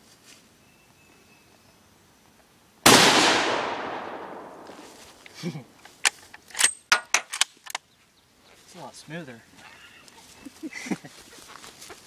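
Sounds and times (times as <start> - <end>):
rifle shot with echo: 2.8 - 4.8
metallic rifle bolt clicks: 6.0 - 7.8.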